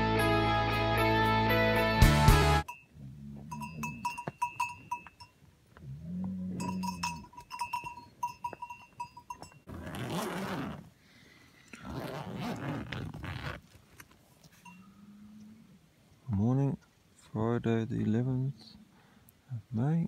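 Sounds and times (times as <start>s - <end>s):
cowbells clinking: 2.6s - 5.5s, 6.3s - 9.7s, 14.5s - 15.2s
cow mooing: 2.9s - 4.1s, 5.8s - 7.2s
tent fabric rustling: 9.7s - 10.9s, 11.8s - 14.6s.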